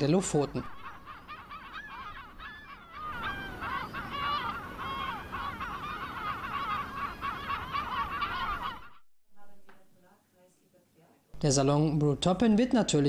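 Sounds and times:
gulls calling: 0.0 - 9.1.

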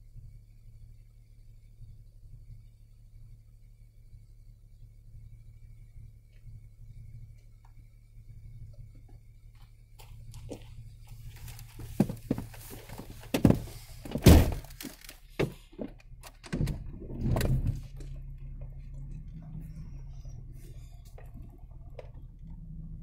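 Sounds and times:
low engine drone: 0.0 - 23.0
thunks and knocks in vehicle cab: 11.9 - 17.8.

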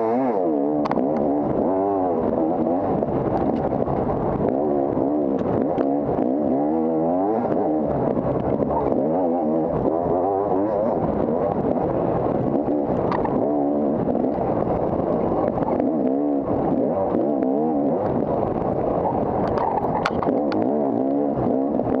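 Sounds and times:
dirt bike engine revving: 0.0 - 18.8, 20.0 - 22.0
sharp clicks: 19.4 - 21.2.

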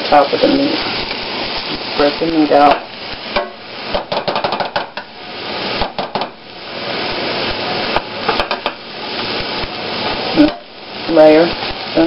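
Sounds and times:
meat sizzling in a frying pan: 0.0 - 12.0
spatula knocking and scraping pan: 2.6 - 5.1, 5.8 - 6.4, 7.9 - 8.8.

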